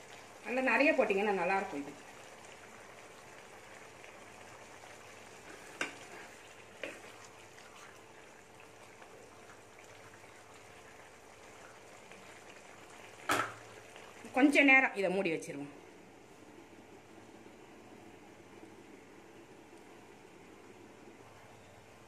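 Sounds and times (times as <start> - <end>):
curry bubbling in a pan: 0.0 - 15.4.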